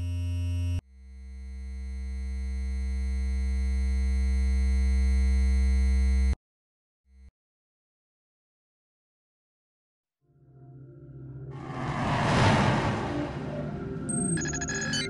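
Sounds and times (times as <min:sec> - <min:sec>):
electronic drone with low bass: 0:11.6 - 0:15.0.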